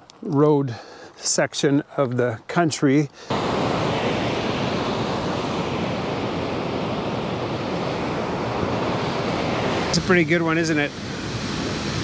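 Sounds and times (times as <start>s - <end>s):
waterfall rushing: 3.3s - 12.0s.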